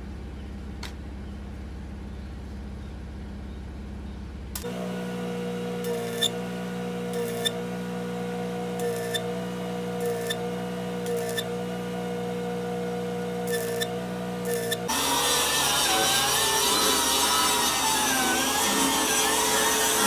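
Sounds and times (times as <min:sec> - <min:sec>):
arc welding crackle: 0:05.8 - 0:06.3, 0:07.1 - 0:07.6, 0:08.8 - 0:09.3, 0:10.0 - 0:10.4, 0:11.0 - 0:11.5, 0:13.5 - 0:20.0.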